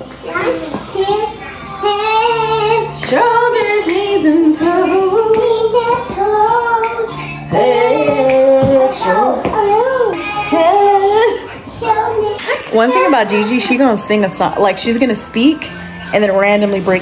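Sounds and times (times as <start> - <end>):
girl singing: 0.2 - 13.8.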